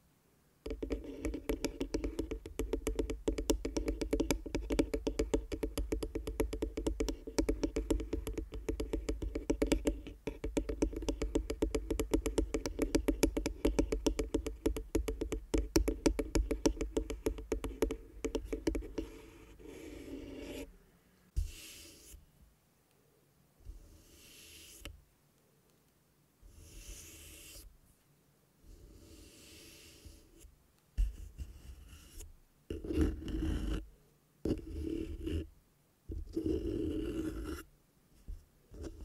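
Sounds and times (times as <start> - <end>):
fingertips tapping on wood: 0.6 - 19.8.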